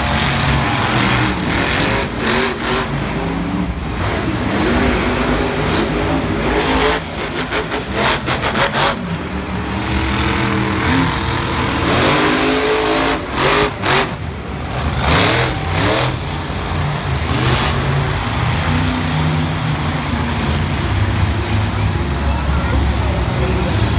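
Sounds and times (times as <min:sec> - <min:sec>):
truck engine revving hard: 0:00.0 - 0:23.9.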